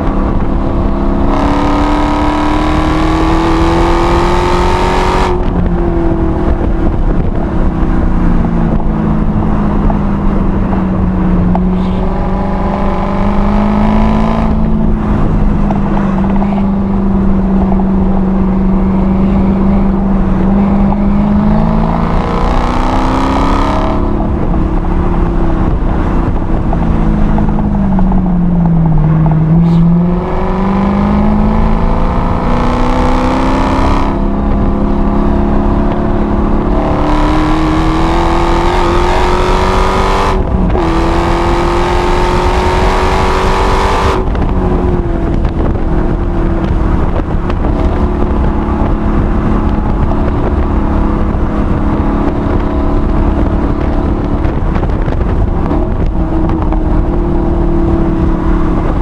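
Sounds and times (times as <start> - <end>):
car engine accelerating: 0.0 - 59.0.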